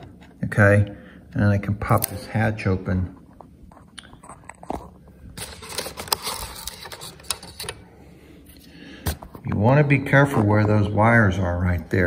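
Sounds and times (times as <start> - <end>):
plastic hatch clicks and scraping: 4.2 - 7.8.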